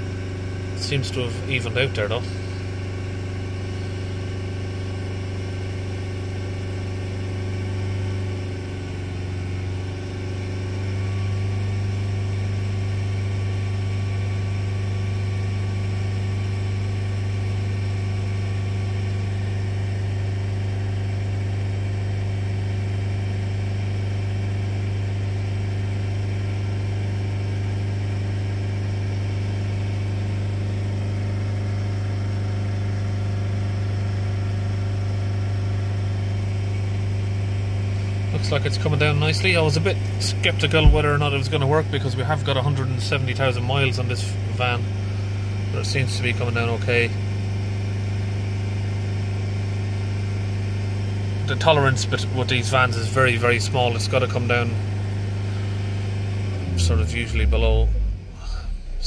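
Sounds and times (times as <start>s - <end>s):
diesel engine droning: 0.8s - 4.6s, 37.9s - 47.1s, 51.5s - 59.0s.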